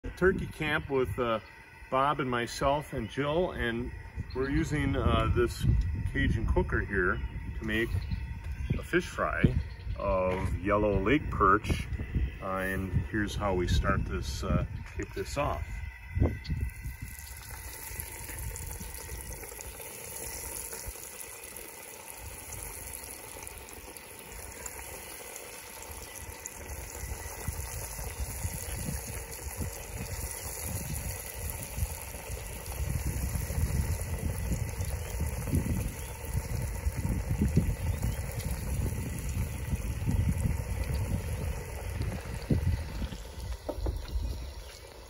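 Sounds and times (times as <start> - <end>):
gusty low rumble: 3.5 - 19.4, 32.6 - 44.6
fish frying in hot oil: 15.0 - 45.0.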